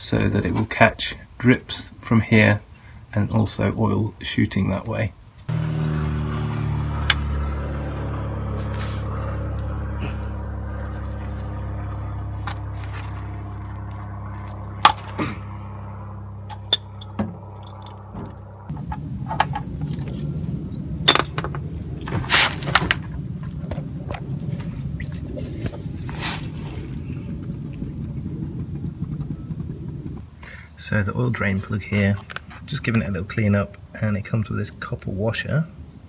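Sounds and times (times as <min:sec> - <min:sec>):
low hum: 0:05.4 - 0:36.0.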